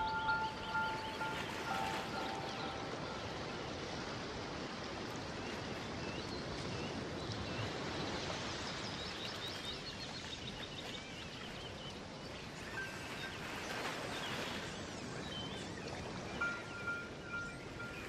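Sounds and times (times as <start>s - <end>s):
running water rushing: 0.0s - 6.0s.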